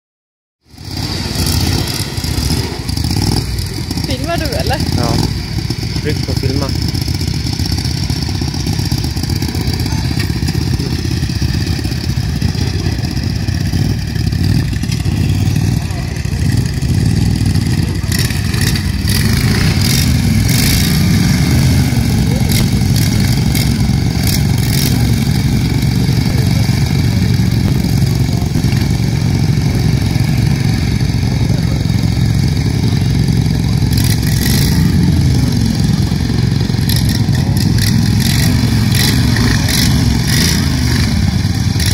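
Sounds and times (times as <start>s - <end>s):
lawn mower engines running: 0.7s - 41.9s
people talking: 4.0s - 5.3s, 6.0s - 6.8s, 9.5s - 11.0s, 12.4s - 13.4s, 15.2s - 18.7s, 21.6s - 23.0s, 26.0s - 34.3s.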